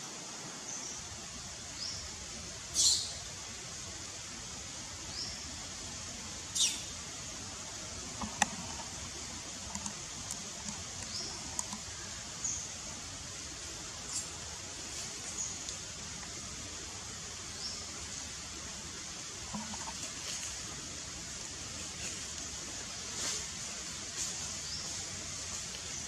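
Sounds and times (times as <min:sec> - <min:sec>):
high-pitched outdoor hiss: 0:00.0 - 0:26.0
faint chirps and clicks: 0:08.0 - 0:12.6, 0:14.1 - 0:16.4.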